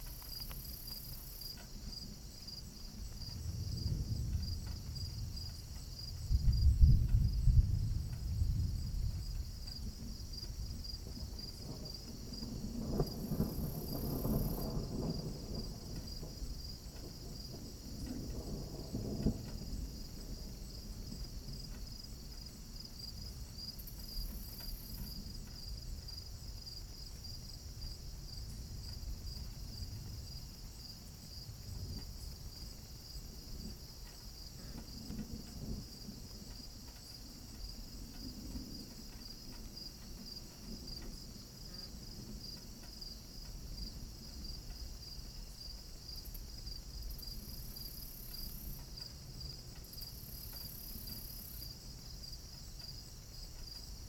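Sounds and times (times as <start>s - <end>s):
crickets chirping: 0.0s - 54.0s
distant thunder rumbling: 1.7s - 26.4s, 27.7s - 45.4s.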